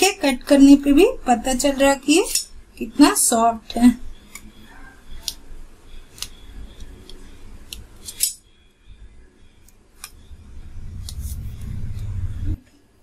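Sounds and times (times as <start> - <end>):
low rumble: 10.1 - 12.6.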